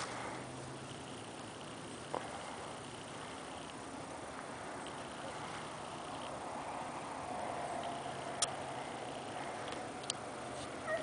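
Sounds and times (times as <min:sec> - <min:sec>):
sharp clicks: 0:07.8 - 0:08.6.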